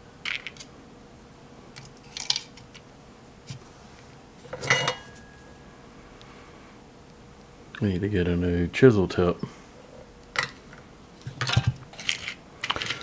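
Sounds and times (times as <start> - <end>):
metallic clatter with ring: 4.6 - 5.4
small parts clicking and tapping: 11.4 - 13.0.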